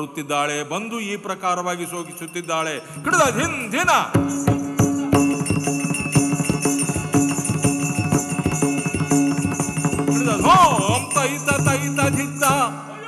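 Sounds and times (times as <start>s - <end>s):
jingling bells: 1.2s - 13.0s
dense percussion strokes: 4.1s - 12.9s.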